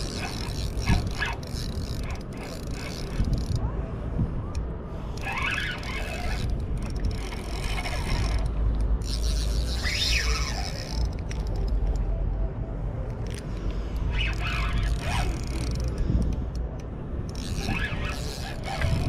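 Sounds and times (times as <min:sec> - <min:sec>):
fishing reel whirring and clicking: 0:00.0 - 0:03.6, 0:04.5 - 0:12.1, 0:13.0 - 0:19.0
wind rumble on microphone: 0:00.0 - 0:13.0, 0:13.6 - 0:19.0.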